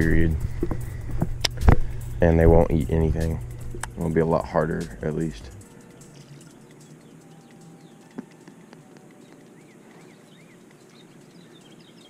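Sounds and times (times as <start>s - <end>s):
faint pond ambience: 0.0s - 12.0s
soft chirps: 5.6s - 12.0s.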